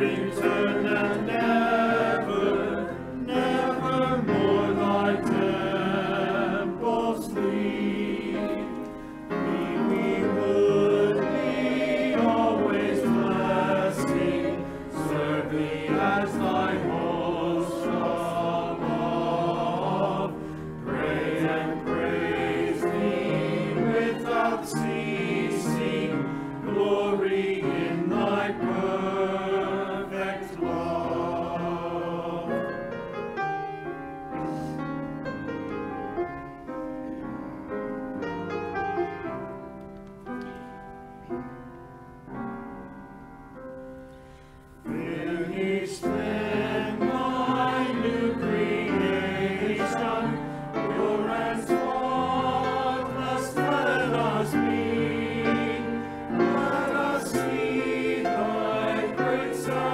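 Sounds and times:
church choir singing a hymn: 0.0 - 33.6, 44.4 - 59.9
grand piano accompaniment: 0.0 - 59.9.

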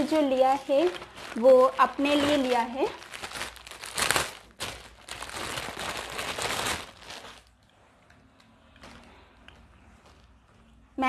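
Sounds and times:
plastic bag crinkling: 0.0 - 7.6, 8.2 - 10.8.

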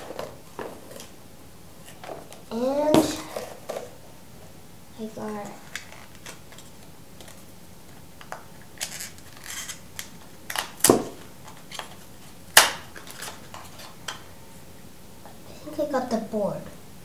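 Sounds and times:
packaging clicks and rustles: 5.3 - 14.2.

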